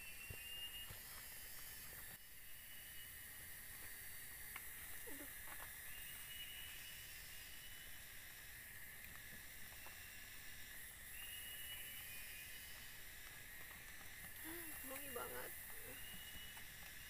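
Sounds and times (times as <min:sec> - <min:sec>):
forest ambience hiss: 0:00.0 - 0:17.0
campfire crackling: 0:08.3 - 0:11.2, 0:12.6 - 0:17.0.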